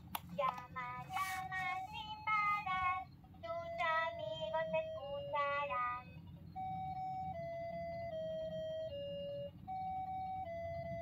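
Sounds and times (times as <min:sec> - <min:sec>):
toy phone singing voice: 0:00.3 - 0:07.0.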